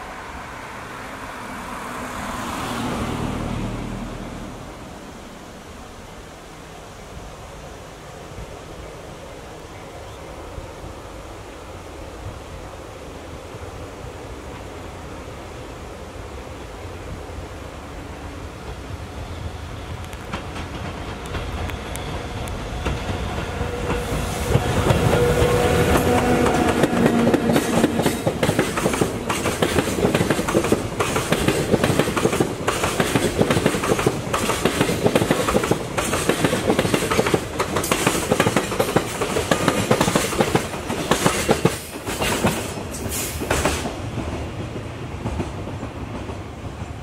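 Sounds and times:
electric locomotive passing: 0.0 - 47.0
wagons clattering over rail joints: 22.8 - 44.3.

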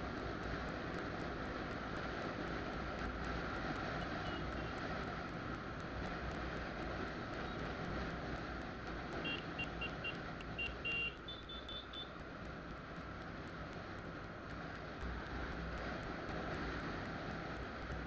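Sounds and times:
vehicle road and wind noise: 0.0 - 18.0
short high electronic beeps: 9.3 - 12.1.

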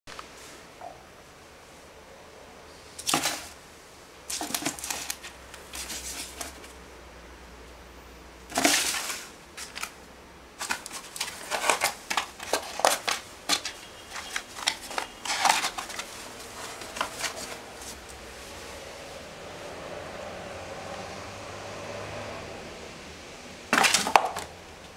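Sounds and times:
kitten claws scratching cardboard: 4.3 - 6.8, 10.6 - 18.2.

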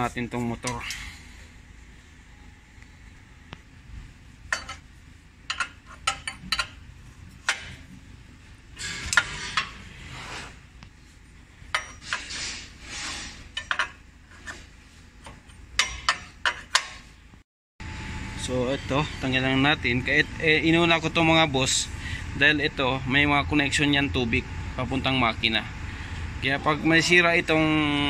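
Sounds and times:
metal wrench clinking on bolts: 5.5 - 6.8.

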